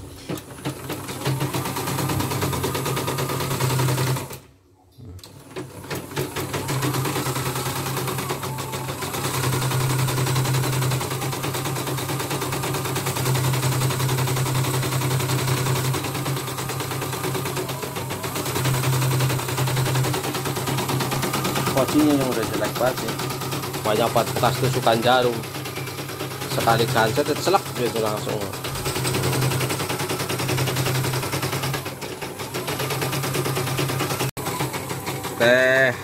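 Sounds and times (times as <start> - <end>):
embroidery machine needle clatter: 5.3 - 35.6.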